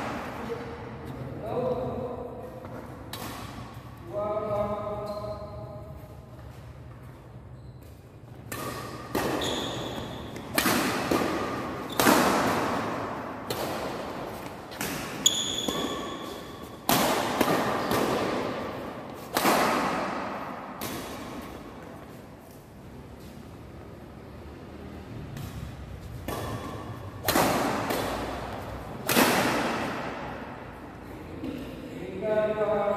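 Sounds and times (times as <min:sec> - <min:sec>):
rackets hitting shuttlecock: 0:02.2 - 0:22.6, 0:25.3 - 0:31.8
shoes squeaking on court: 0:04.5 - 0:12.6, 0:14.3 - 0:16.8.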